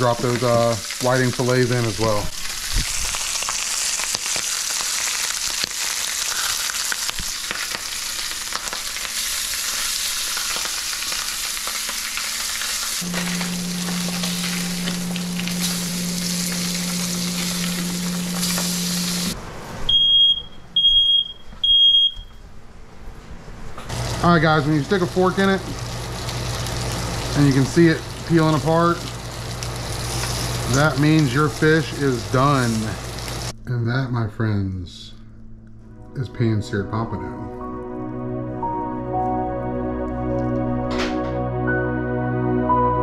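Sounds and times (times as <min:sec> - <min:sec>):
fish sizzling in oil: 0:00.0 - 0:19.4, 0:23.9 - 0:33.5
low steady hum: 0:13.0 - 0:19.4
smoke alarm beeping: 0:13.0 - 0:22.4.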